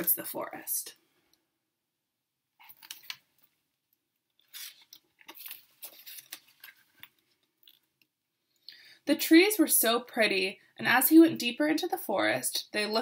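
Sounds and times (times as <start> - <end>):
book pages rustling: 2.6 - 3.6, 4.3 - 7.9.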